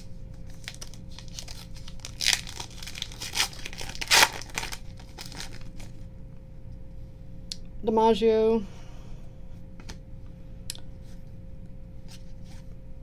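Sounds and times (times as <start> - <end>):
foil wrapper crinkling and ripping: 0.4 - 6.0.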